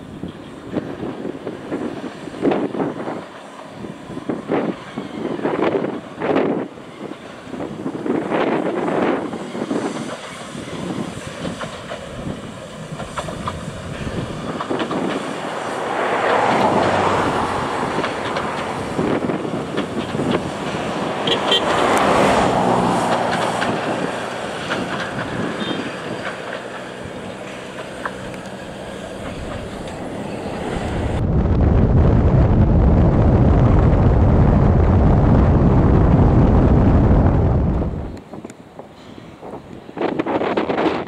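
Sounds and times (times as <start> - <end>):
steam railcar passing: 0.0 - 31.4, 32.2 - 41.0
wheels clicking over track: 8.2 - 31.2.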